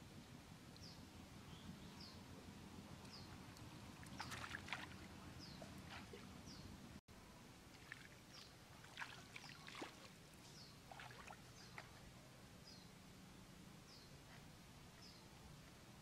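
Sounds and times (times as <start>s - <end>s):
wet squelches and splashes: 4.0s - 6.4s, 7.7s - 10.2s, 10.9s - 12.0s.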